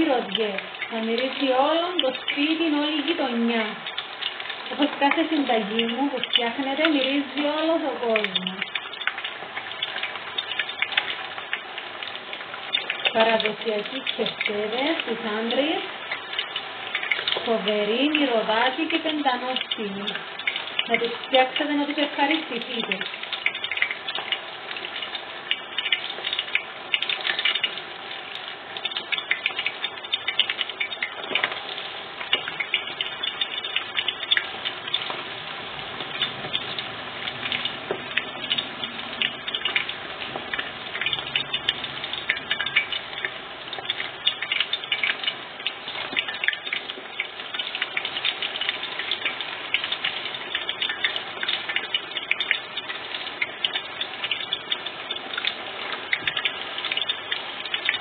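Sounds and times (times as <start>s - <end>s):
meatballs sizzling in hot oil: 0.0s - 58.0s.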